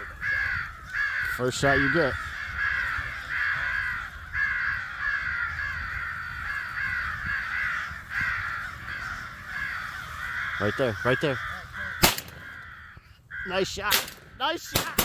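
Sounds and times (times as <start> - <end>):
crows cawing: 0.0 - 15.0.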